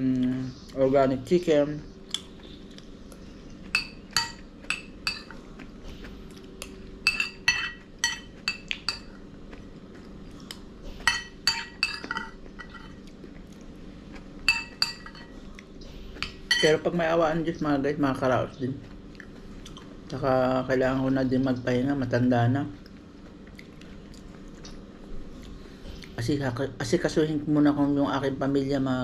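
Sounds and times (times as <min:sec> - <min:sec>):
cutlery clinking on a plate: 0:07.1 - 0:09.1, 0:11.1 - 0:13.0.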